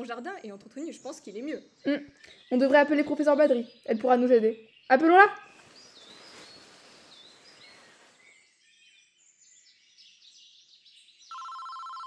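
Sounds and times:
birds chirping: 0.0s - 12.0s
soft rustling hiss: 5.5s - 8.5s.

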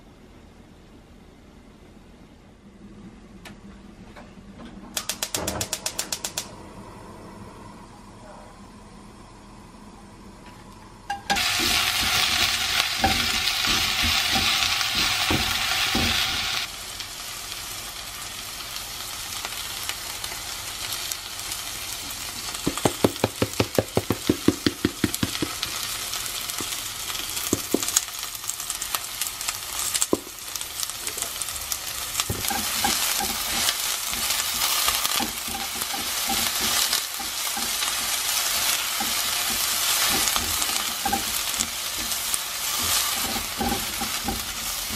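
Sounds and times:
onions sizzling in oil: 11.2s - 44.9s
spatula stirring onions: 11.3s - 16.7s, 22.1s - 44.9s.

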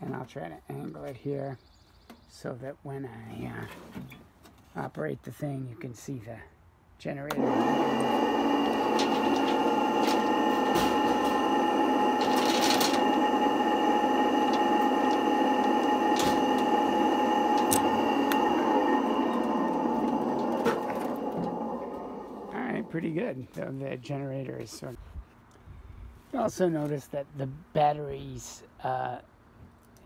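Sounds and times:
electric motor whining: 7.3s - 23.2s.

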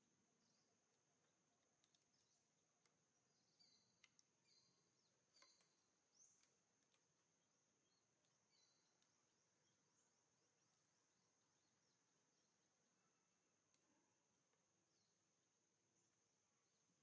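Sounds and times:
light clicks: 1.7s - 3.0s, 3.6s - 7.1s.

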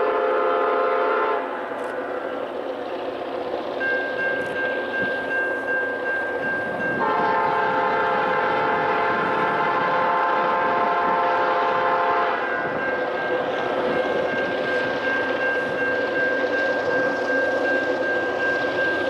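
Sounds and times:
locomotive air horn: 0.0s - 1.6s, 6.9s - 12.8s
railroad crossing bell ringing: 3.4s - 19.0s.

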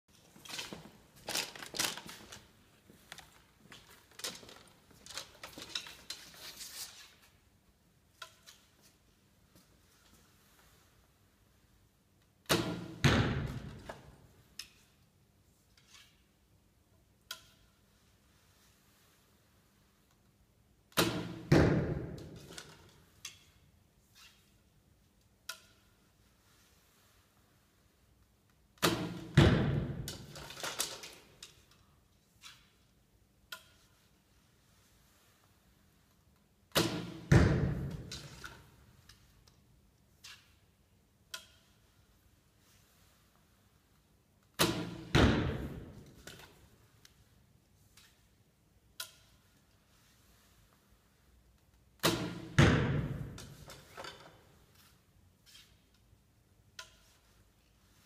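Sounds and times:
rustling handling noise: 0.1s - 7.6s
arrow thudding into target: 12.4s - 14.1s, 21.0s - 22.7s, 28.8s - 30.6s, 36.7s - 38.4s, 44.6s - 46.4s, 52.0s - 53.6s
light clicks of arrow handling: 49.0s - 50.0s.

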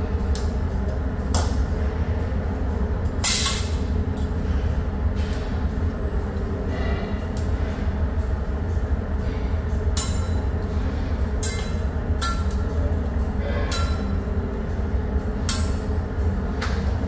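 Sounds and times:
steady low hum: 0.0s - 17.0s
metal utensils striking griddle: 11.4s - 12.6s.

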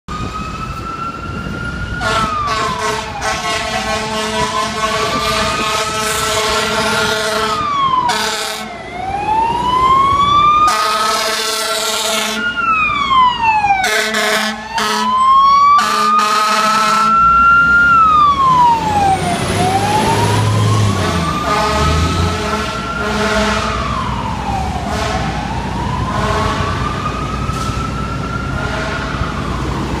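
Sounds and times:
fire truck siren wailing: 0.1s - 30.0s
truck engine rumbling: 0.1s - 30.0s
air horn blasts: 2.0s - 8.7s, 10.7s - 12.4s, 13.8s - 15.2s, 15.8s - 17.2s, 21.0s - 23.8s, 24.9s - 25.4s, 26.1s - 26.8s, 28.6s - 29.2s.

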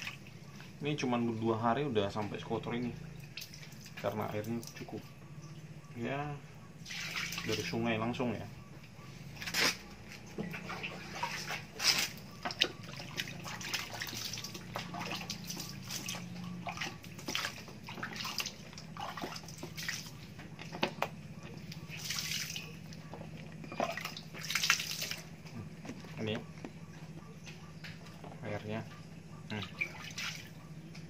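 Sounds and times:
water splashing and dripping: 0.0s - 1.1s, 3.2s - 5.1s, 6.8s - 8.1s, 9.4s - 26.4s, 29.5s - 31.0s.

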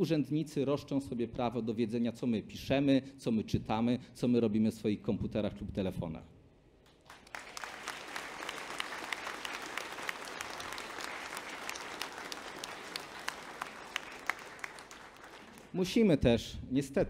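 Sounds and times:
audience applauding: 6.9s - 16.0s.

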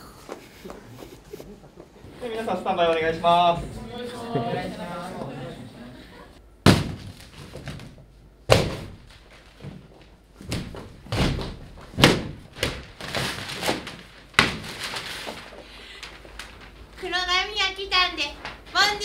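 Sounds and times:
paper ripping and crumpling: 12.7s - 17.0s.

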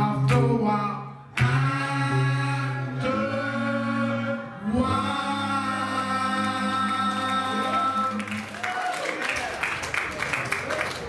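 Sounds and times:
men's choir singing a cappella: 0.0s - 8.5s.

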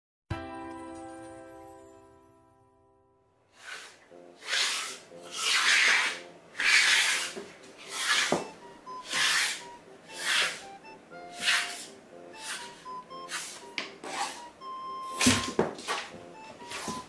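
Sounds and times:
chopstick scraping on floor: 3.6s - 14.5s, 15.1s - 17.0s.

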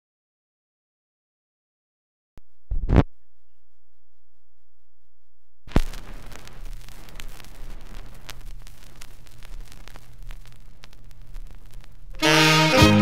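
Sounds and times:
low hum: 2.4s - 12.2s
vinyl surface crackle and pops: 2.7s - 3.6s, 5.6s - 13.0s
music from record: 5.7s - 13.0s.

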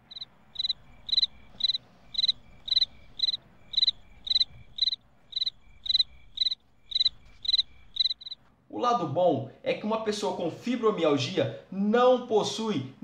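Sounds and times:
cricket chirping: 0.0s - 8.4s.

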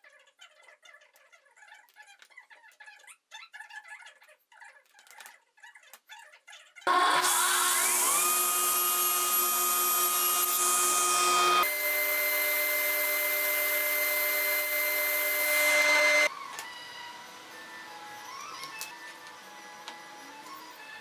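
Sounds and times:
table saw blade whining: 6.9s - 16.3s.

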